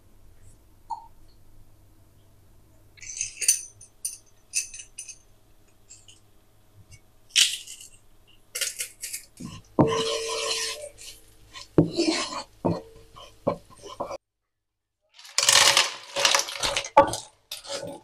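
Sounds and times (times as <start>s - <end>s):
wooden spoon scraping a pan: 8.8s - 14.2s, 15.2s - 18.0s.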